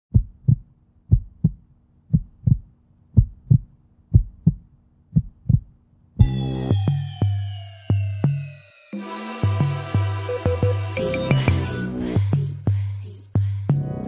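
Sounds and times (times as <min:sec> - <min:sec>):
heartbeat double thump: 0:00.1 - 0:06.4
deep bass music: 0:06.2 - 0:08.5, 0:09.4 - 0:14.0.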